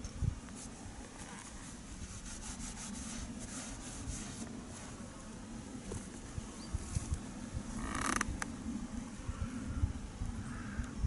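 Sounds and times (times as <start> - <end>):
scratchy rubbing and rustling: 0.5 - 5.1.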